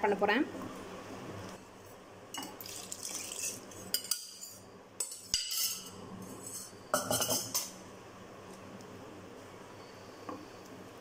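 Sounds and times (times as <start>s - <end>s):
water pouring: 2.4s - 3.6s.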